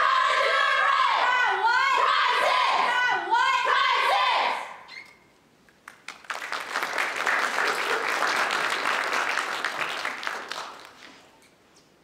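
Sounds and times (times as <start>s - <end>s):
audience applauding: 5.8s - 11.2s.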